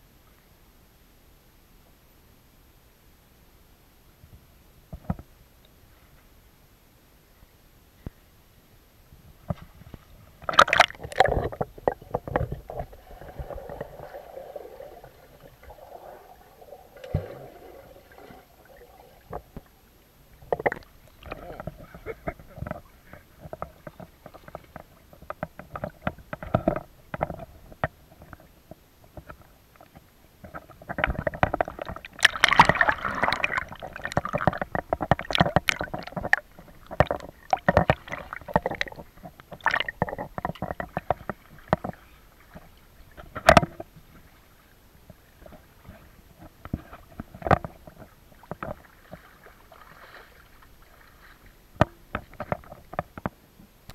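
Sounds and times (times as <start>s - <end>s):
swimming strokes: 9.7s - 19.8s, 31.8s - 40.2s, 48.3s - 51.6s
pool water splashing: 10.4s - 23.3s, 31.8s - 40.4s, 48.0s - 52.1s.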